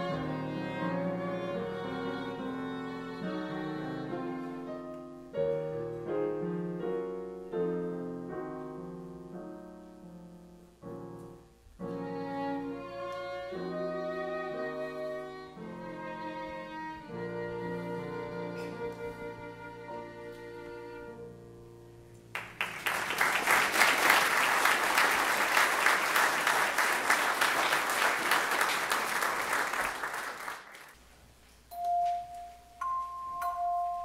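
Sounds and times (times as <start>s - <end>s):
violin and flute melody: 0.0s - 5.0s, 11.9s - 21.4s
piano accompaniment: 0.0s - 23.6s, 31.7s - 34.0s.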